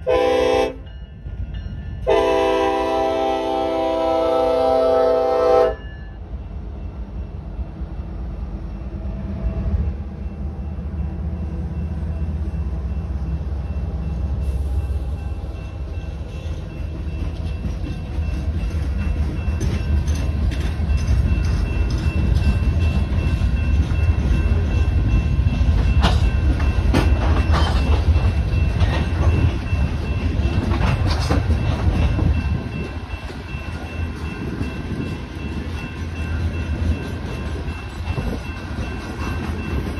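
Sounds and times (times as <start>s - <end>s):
train horn: 0.0s - 0.9s, 2.0s - 5.9s
train wheels clicking on rails: 14.4s - 39.9s.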